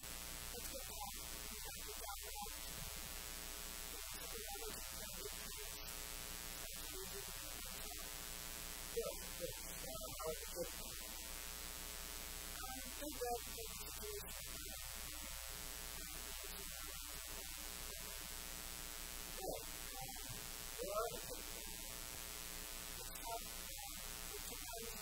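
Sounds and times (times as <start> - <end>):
electrical hum and hiss: 0.0 - 25.0.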